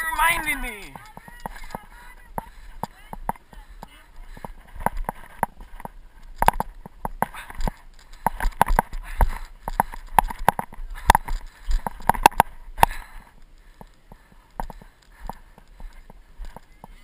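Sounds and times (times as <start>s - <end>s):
camera jostling: 1.0s - 3.4s.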